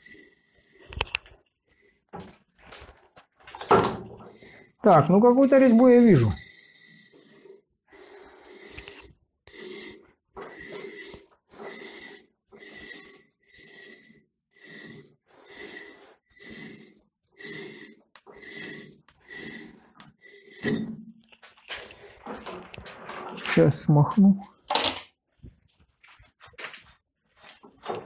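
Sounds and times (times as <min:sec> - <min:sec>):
die scraping on pipe thread: 0:03.6 - 0:23.6.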